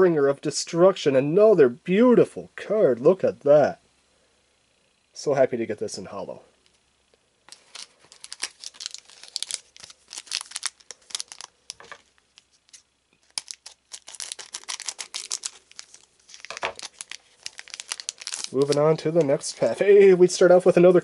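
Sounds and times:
foil wrapper crinkling: 0:07.5 - 0:19.7.

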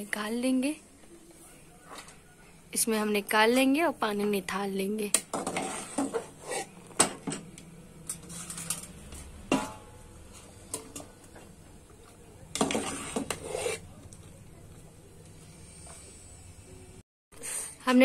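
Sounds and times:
metal utensils clinking on pots: 0:05.1 - 0:11.6, 0:12.5 - 0:13.8
utensils clattering: 0:05.3 - 0:09.8.

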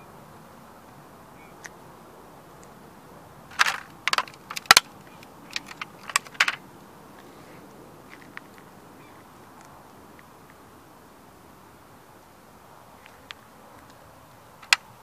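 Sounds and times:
plastic model cracking under boot: 0:03.5 - 0:04.9, 0:05.5 - 0:06.6, 0:14.6 - 0:14.8.

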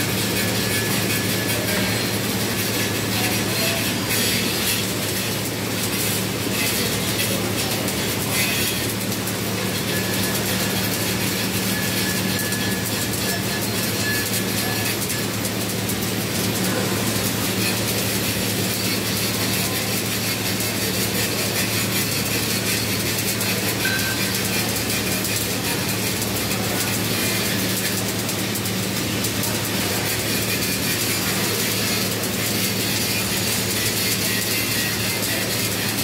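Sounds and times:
welding arc crackling and sizzling: 0:00.0 - 0:36.0.

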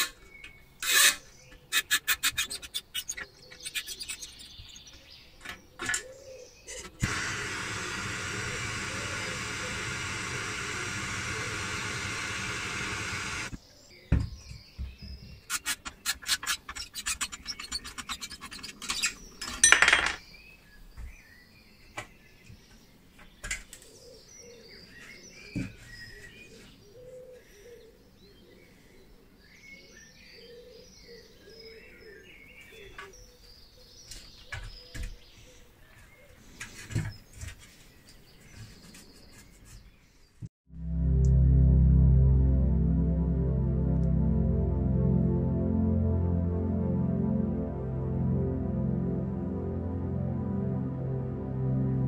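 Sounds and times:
birds chirping: 0:00.0 - 0:40.5
gas blowtorch hissing: 0:07.0 - 0:13.6
screwdriver scraping on steel: 0:15.5 - 0:19.7.

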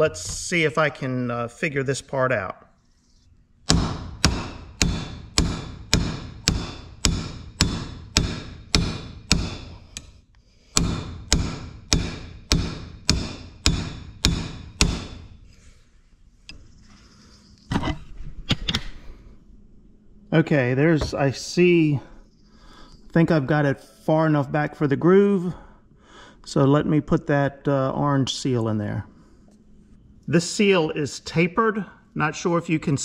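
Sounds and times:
hammer striking steel punch: 0:03.7 - 0:10.0, 0:10.8 - 0:15.4
handling knocks: 0:21.0 - 0:21.3.

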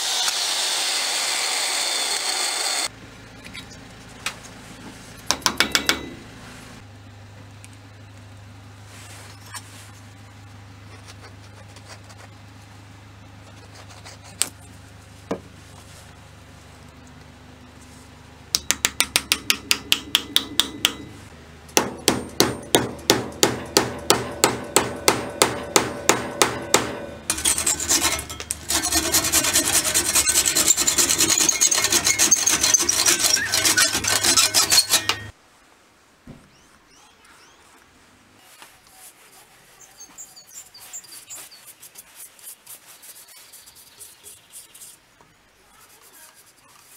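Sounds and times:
hammer striking wooden wedge: 0:05.2 - 0:06.2, 0:18.5 - 0:35.3
handsaw rasping: 0:22.1 - 0:35.3.

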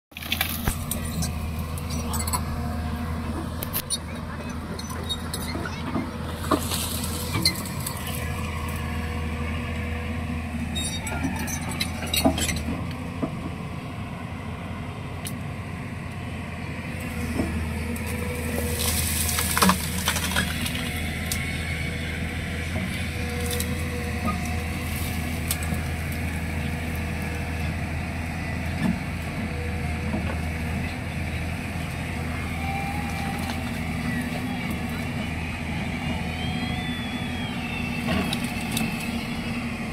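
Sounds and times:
excavator diesel engine running: 0:00.1 - 0:39.9
branches snapping and cracking: 0:00.2 - 0:01.9, 0:17.9 - 0:21.5.

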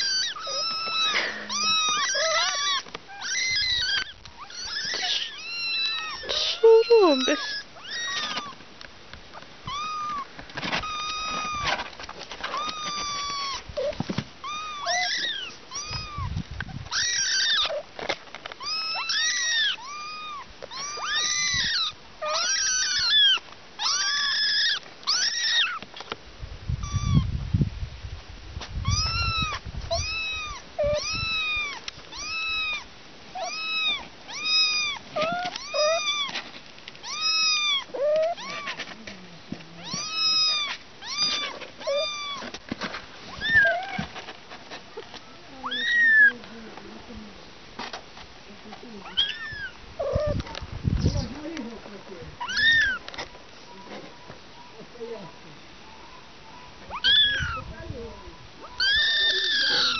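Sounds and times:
kittens mewing: 0:00.0 - 0:08.6, 0:09.4 - 0:26.1, 0:26.8 - 0:27.3, 0:28.8 - 0:44.3, 0:44.9 - 0:46.5, 0:48.7 - 0:51.8, 0:52.4 - 0:53.9, 0:56.0 - 0:59.9.

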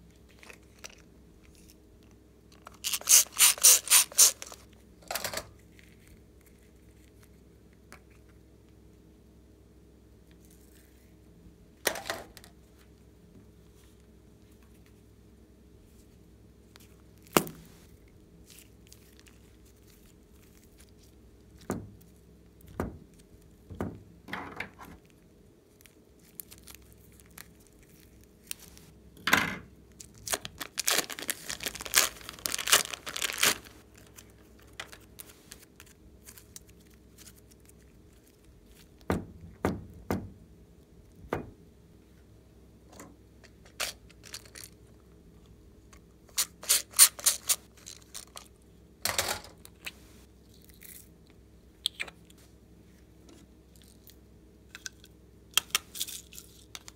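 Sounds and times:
thin plastic crinkling and tearing: 0:00.3 - 0:04.8, 0:16.7 - 0:22.2, 0:25.0 - 0:29.0, 0:29.9 - 0:39.0, 0:43.6 - 0:44.9, 0:46.0 - 0:48.6, 0:53.7 - 0:56.9.

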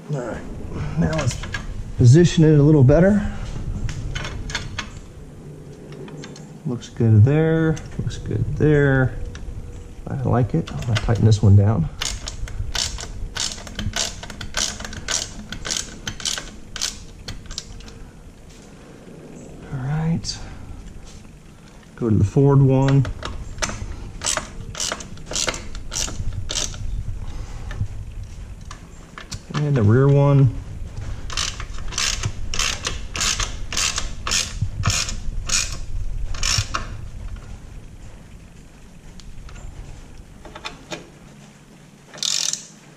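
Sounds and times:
socket ratchet clicking: 0:12.0 - 0:17.9, 0:23.6 - 0:26.8, 0:31.3 - 0:36.9, 0:42.1 - 0:42.8.

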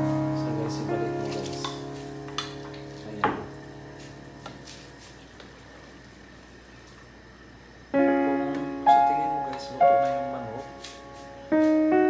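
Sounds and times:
piano note: 0:00.0 - 0:05.0, 0:07.9 - 0:12.0.

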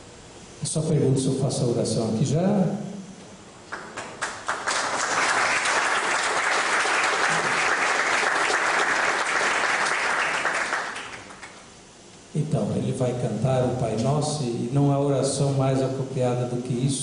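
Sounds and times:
audience applauding: 0:03.7 - 0:11.6.

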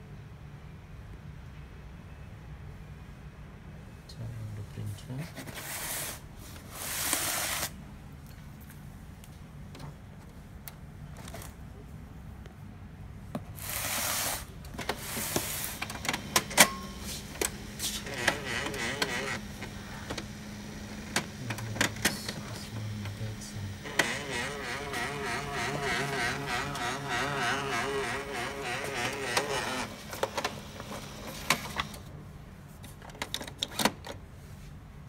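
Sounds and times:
printer motor humming: 0:14.8 - 0:32.1
sharp printer clicks: 0:14.8 - 0:32.1.

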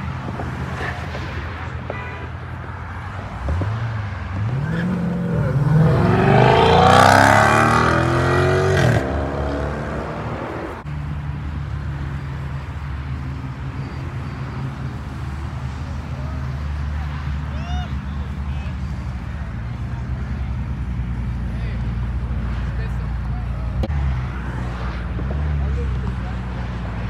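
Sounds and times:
sports car engine droning: 0:02.7 - 0:17.4
car engine revving through upshifts: 0:03.4 - 0:10.8.

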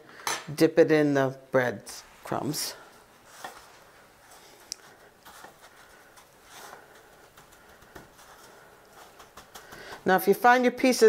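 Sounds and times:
faint rustling in bread crumbs: 0:01.9 - 0:10.2.

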